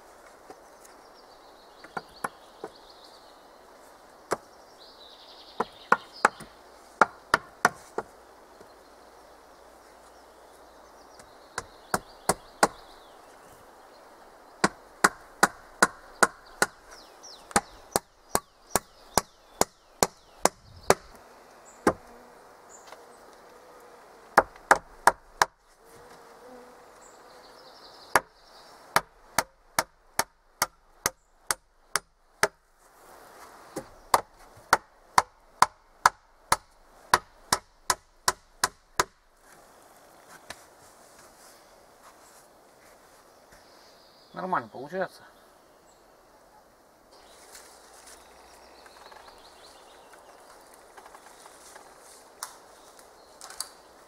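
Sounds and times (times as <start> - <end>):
hand tool striking wood: 5.6 - 8.1, 14.6 - 16.9, 24.4 - 25.6, 29.0 - 32.6, 33.8 - 39.2.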